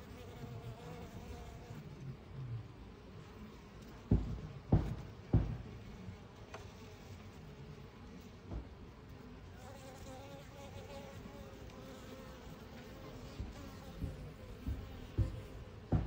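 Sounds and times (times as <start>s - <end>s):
single bee buzzing close: 0.0s - 1.9s, 9.6s - 16.0s
honeybees buzzing: 0.0s - 16.0s
low thump: 4.1s - 5.7s.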